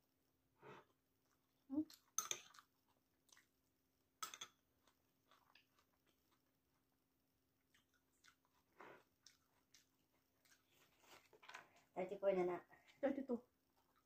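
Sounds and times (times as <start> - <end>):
close-up chewing and biting: 7.6 - 11.5.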